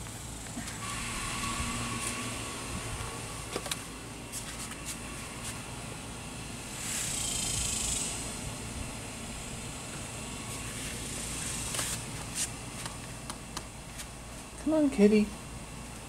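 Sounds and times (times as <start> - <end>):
cicadas buzzing: 0.0 - 14.2
low steady rumble: 0.0 - 16.0.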